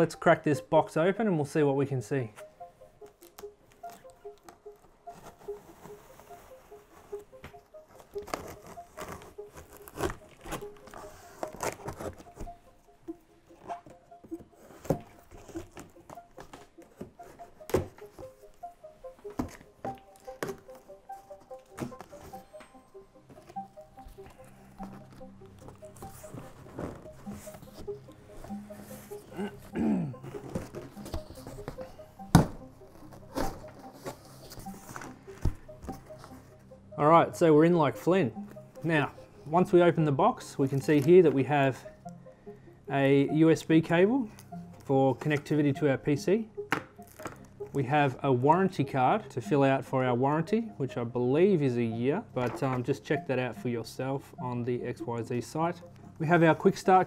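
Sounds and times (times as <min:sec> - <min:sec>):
cardboard box rustling: 0:05.1 - 0:12.6, 0:13.7 - 0:18.4, 0:19.3 - 0:29.3, 0:30.2 - 0:36.3.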